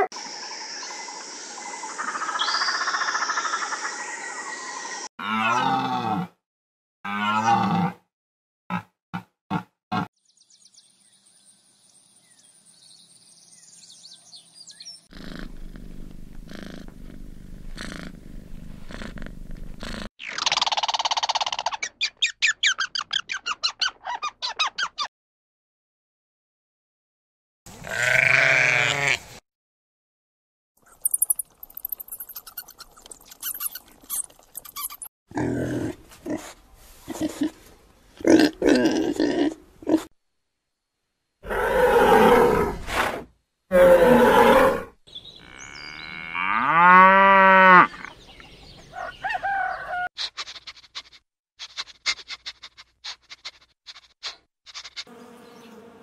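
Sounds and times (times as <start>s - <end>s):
pig grunting: 5.2s - 6.3s, 15.1s - 20.1s, 35.3s - 37.6s, 38.2s - 40.1s
birds chirping and whistling: 10.3s - 15.1s, 45.1s - 46.2s, 47.9s - 50.0s
cat purring: 15.2s - 20.1s
rat squeaking: 30.9s - 35.1s.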